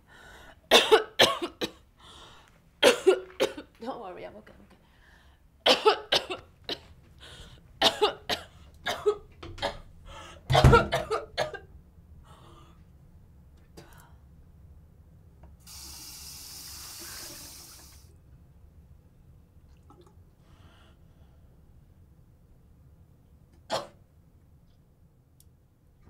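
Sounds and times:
woman coughing: 0:00.7 - 0:01.8, 0:02.8 - 0:03.7, 0:05.6 - 0:06.9, 0:07.8 - 0:09.8, 0:10.5 - 0:11.7
sink tap running: 0:15.7 - 0:18.1.

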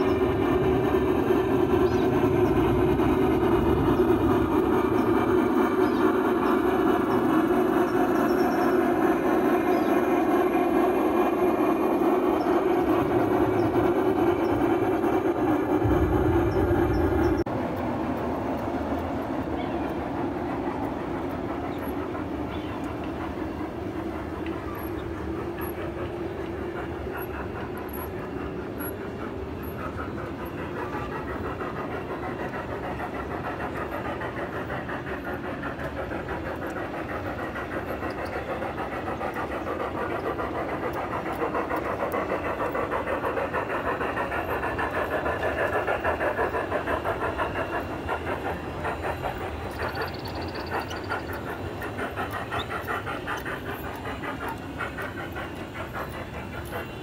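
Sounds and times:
model steam train running: 0:00.0 - 0:57.0.

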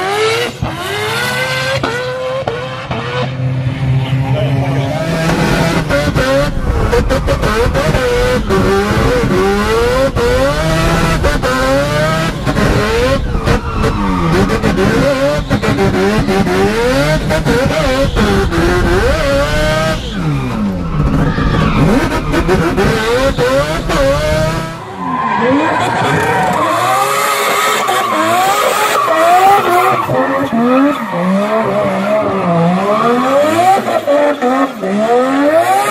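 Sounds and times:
rotary engine revving: 0:00.0 - 0:35.9
tyres skidding: 0:04.0 - 0:35.9.

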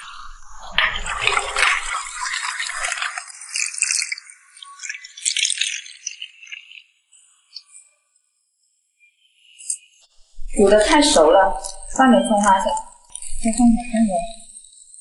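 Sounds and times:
liquid pouring: 0:00.6 - 0:06.6.

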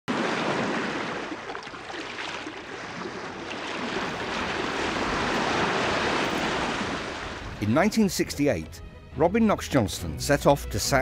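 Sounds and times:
water splashing against boat bow: 0:00.1 - 0:07.7.

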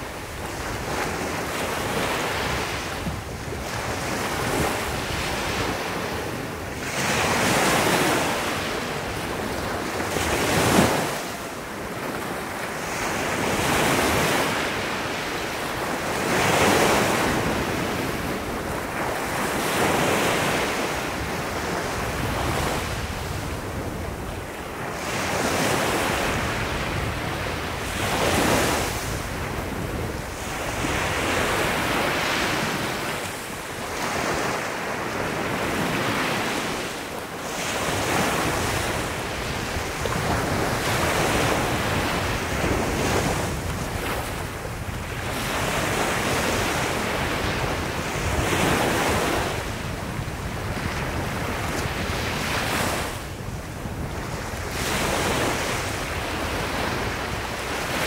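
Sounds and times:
waves washing up a sandy shore: 0:00.0 - 0:58.0
wind rumble on microphone: 0:00.0 - 0:58.0.

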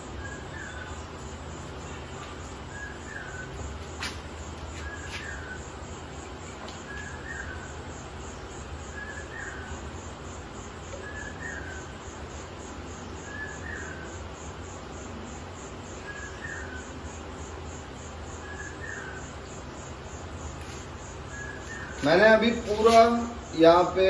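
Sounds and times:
bird calling: 0:00.0 - 0:01.2, 0:01.9 - 0:03.6, 0:06.8 - 0:07.8, 0:08.9 - 0:10.0, 0:10.9 - 0:12.1, 0:13.1 - 0:14.2, 0:20.7 - 0:23.3
steady low hum: 0:00.0 - 0:24.0.

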